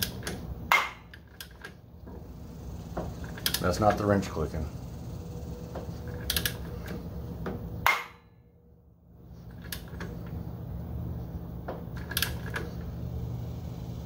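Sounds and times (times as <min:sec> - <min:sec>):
clutch popping: 0:00.0 - 0:04.1, 0:05.0 - 0:08.3, 0:09.3 - 0:10.5, 0:11.5 - 0:13.2.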